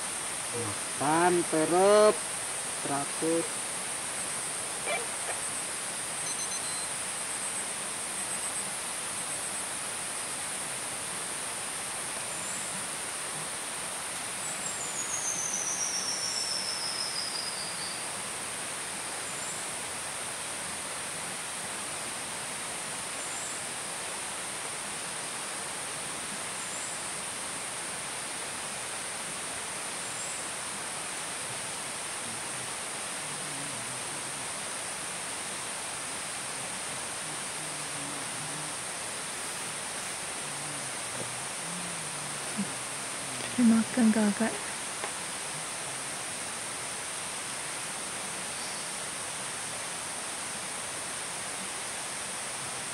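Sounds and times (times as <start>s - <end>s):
even hiss: 0.0s - 52.9s
high-pitched insect chorus: 0.0s - 52.9s
short high chirps: 6.2s - 6.9s.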